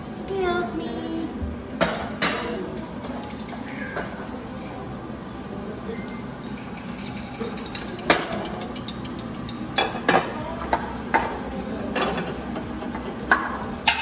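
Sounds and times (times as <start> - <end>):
dishes clattering in a drawer: 6.5 - 14.0.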